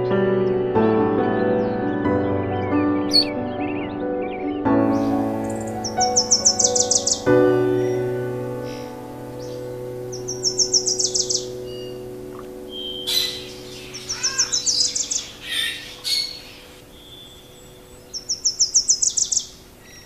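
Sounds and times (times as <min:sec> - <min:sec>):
held low chord: 0:00.0 - 0:18.2
songbird trilling: 0:03.0 - 0:03.9, 0:04.8 - 0:20.0.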